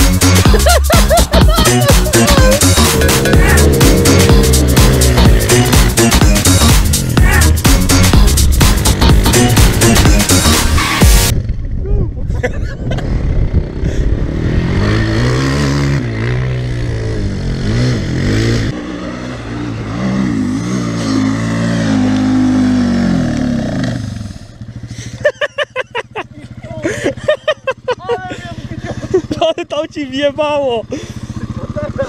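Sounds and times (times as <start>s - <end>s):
quad bike engine revving: 1.4s - 11.4s, 13.0s - 25.3s, 30.8s - 32.0s.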